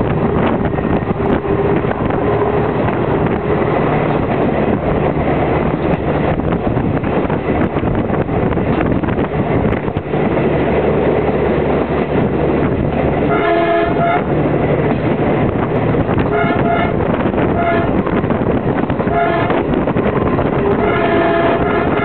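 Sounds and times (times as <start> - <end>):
diesel railcar rumbling on track: 0.0 - 22.0
train horn: 13.3 - 14.3, 16.2 - 18.3, 19.0 - 19.7, 20.6 - 22.0.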